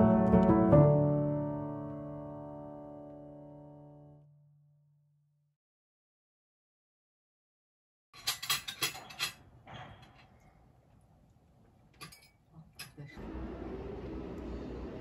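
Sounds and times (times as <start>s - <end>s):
tableware clinking: 8.2s - 10.5s, 12.0s - 13.1s
low room hum: 10.0s - 15.0s.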